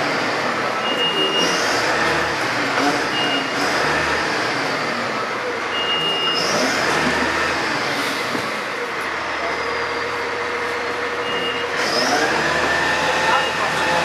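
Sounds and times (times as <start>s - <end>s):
fire engine motor running: 0.0s - 14.0s
short high beep: 0.8s - 1.6s, 5.7s - 6.5s, 11.2s - 11.8s.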